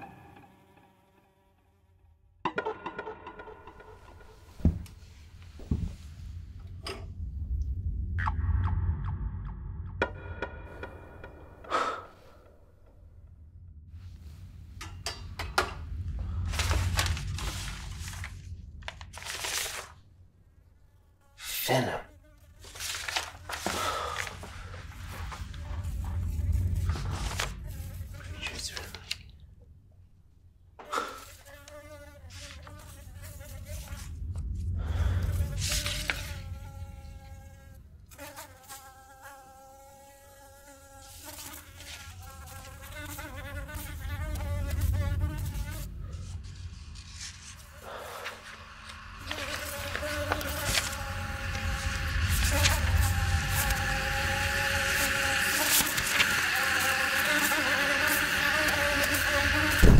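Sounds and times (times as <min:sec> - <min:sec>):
low rumble: 0:03.2 - 0:20.8, 0:24.2 - 0:30.7, 0:33.0 - 0:38.2, 0:42.9 - 0:54.9
objects scraping and rustling: 0:14.0 - 0:20.1, 0:22.6 - 0:29.3, 0:32.2 - 0:34.6, 0:43.8 - 0:54.0
flying insect buzzing: 0:24.4 - 0:29.0, 0:30.8 - 0:34.3, 0:34.9 - 0:59.9.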